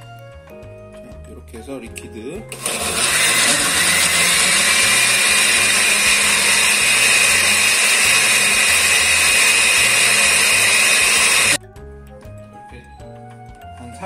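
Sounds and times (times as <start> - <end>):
blender motor whine: 2.5 - 11.6
liquid churning: 2.5 - 11.6.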